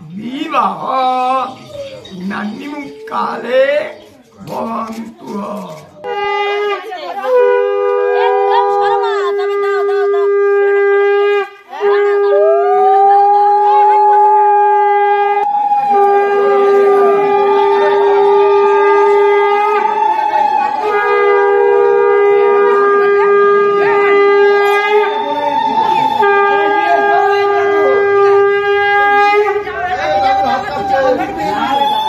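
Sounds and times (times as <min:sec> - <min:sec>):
conch shells blown: 0:06.1 - 0:12.8, 0:14.8 - 0:29.7
higher wavering conch tone: 0:10.2 - 0:32.0.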